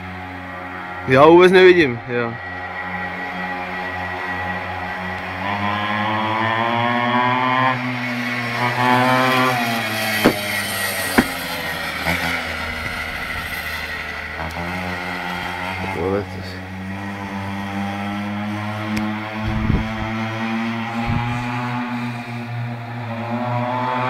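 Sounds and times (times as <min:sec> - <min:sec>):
small motorbike engine revving: 0:03.4 - 0:24.0
sharp knocks: 0:10.2 - 0:11.4.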